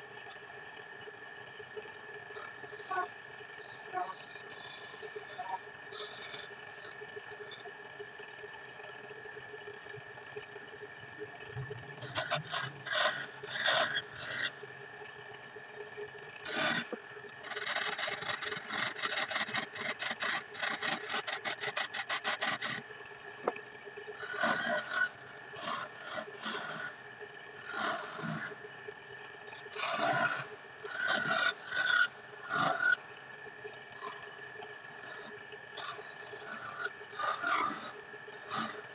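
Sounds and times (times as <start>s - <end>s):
tool scraping spinning wood: 16.5s - 22.8s.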